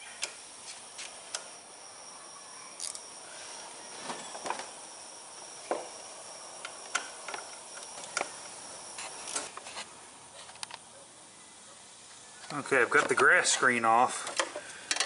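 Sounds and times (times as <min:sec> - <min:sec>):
steady high-pitched tone: 0:00.0 - 0:09.5.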